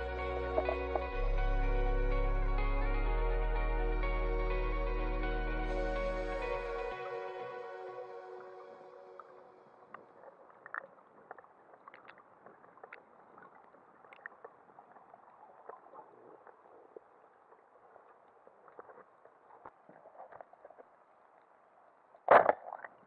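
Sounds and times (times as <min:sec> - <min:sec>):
small clicks and crackles: 0:09.9 - 0:21.5.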